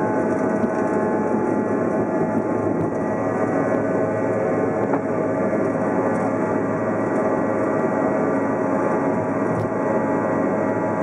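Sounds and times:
jet engines rushing and humming: 0.0 - 11.0
steady whining tones: 0.0 - 11.0.

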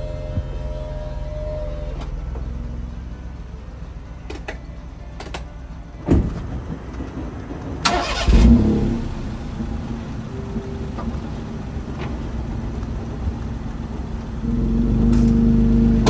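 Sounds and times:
retractable roof motor whine: 0.0 - 6.0
steady low rumble: 0.0 - 16.0
thump: 6.1 - 6.5.

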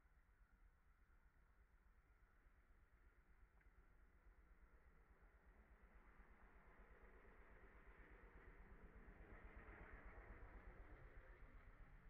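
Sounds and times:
low rumble: 4.8 - 12.0.

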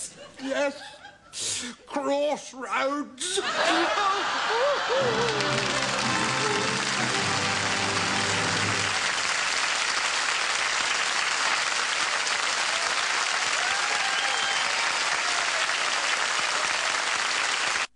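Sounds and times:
studio audience applauding: 4.4 - 17.9
held music notes: 5.0 - 9.0.

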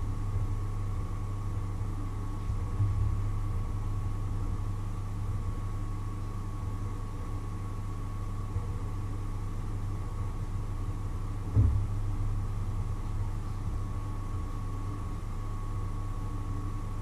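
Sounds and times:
low machine hum: 0.0 - 17.0
short knock: 11.5 - 11.9.

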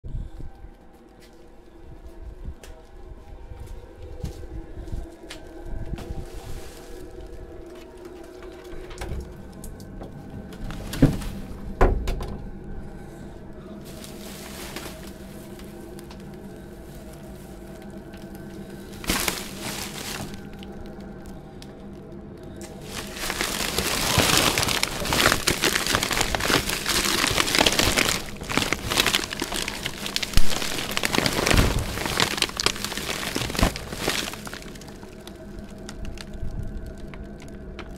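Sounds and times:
plastic bin bags crackling: 13.8 - 21.4, 22.6 - 37.9.

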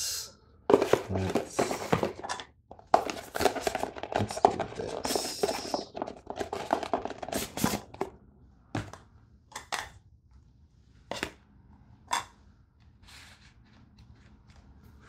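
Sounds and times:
containers rattling clicks: 0.7 - 8.1.

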